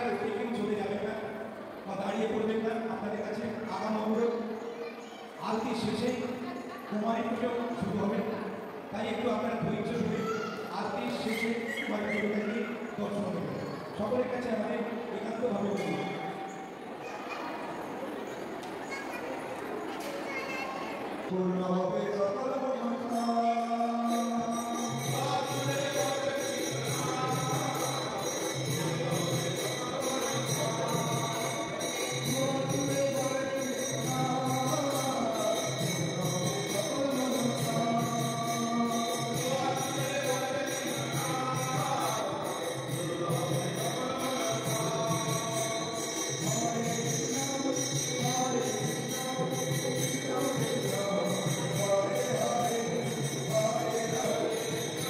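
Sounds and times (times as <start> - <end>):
jingling tambourine: 23.1 - 55.0.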